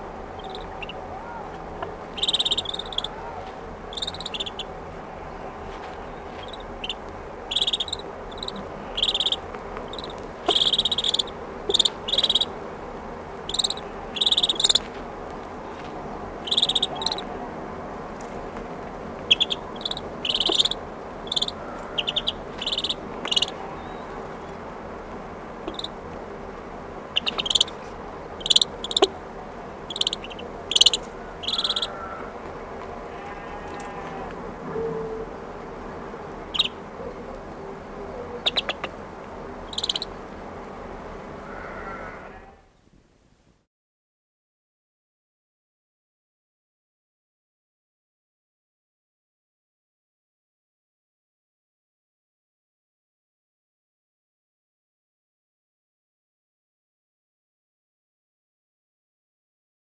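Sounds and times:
ducklings peeping: 0:00.0 - 0:12.6, 0:13.4 - 0:14.9, 0:16.4 - 0:17.4, 0:19.2 - 0:24.6, 0:25.6 - 0:26.0, 0:27.0 - 0:29.2, 0:29.8 - 0:32.4, 0:36.4 - 0:37.5, 0:38.1 - 0:39.0, 0:39.6 - 0:40.2
mushy background noise: 0:00.0 - 0:43.5.

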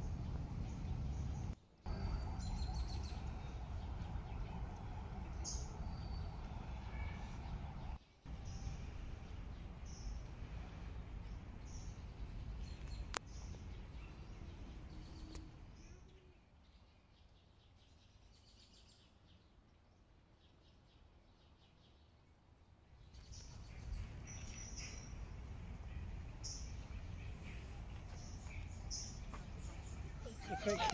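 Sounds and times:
low background rumble: 0:00.0 - 0:16.0, 0:23.2 - 0:30.9
birds chirping: 0:00.0 - 0:17.8, 0:23.0 - 0:30.9.

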